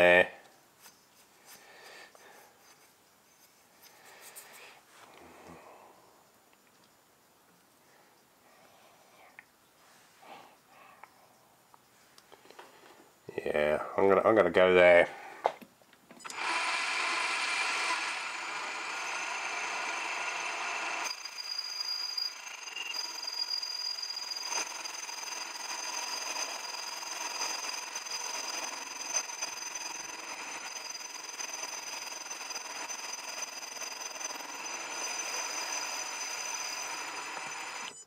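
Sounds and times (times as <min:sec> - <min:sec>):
lathe cutting metal: 0:16.3 - 0:37.9.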